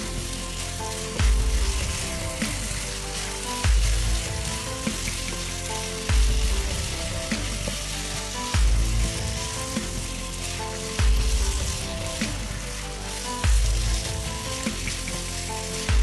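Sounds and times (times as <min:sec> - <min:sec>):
chicken and onion sizzling: 0:00.0 - 0:16.0.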